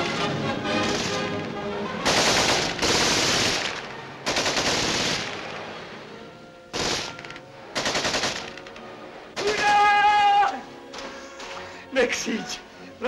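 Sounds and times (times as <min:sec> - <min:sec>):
machine-gun fire bursts: 0:00.8 - 0:01.3, 0:02.0 - 0:05.5, 0:06.7 - 0:08.6.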